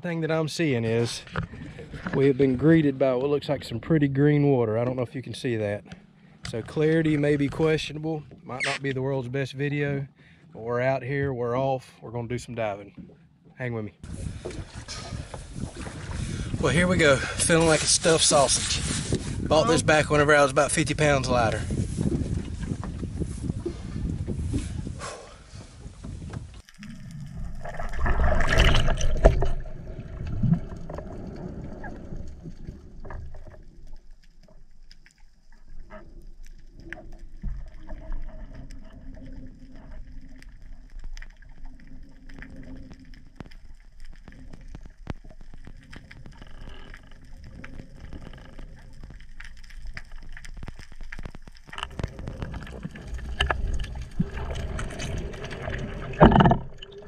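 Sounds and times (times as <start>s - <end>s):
underwater rush of bubbles: 26.7s - 34.7s, 47.2s - 57.0s
muffled underwater clicks: 31.8s - 57.0s.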